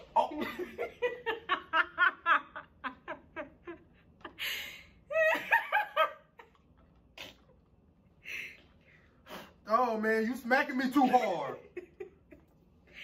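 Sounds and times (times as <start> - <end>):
woman laughing: 0.1 - 6.5, 11.0 - 12.4.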